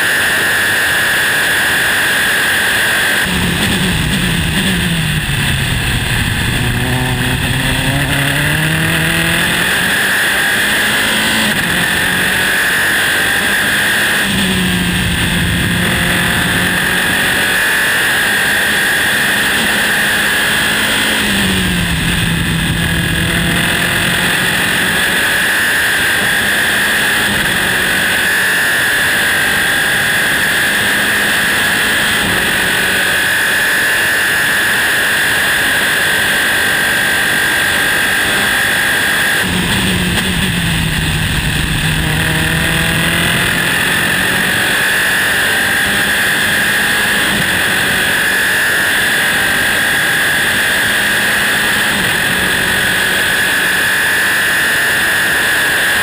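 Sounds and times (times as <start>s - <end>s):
racing car engine revving: 0.0s - 56.0s
wind noise rushing: 3.3s - 10.3s.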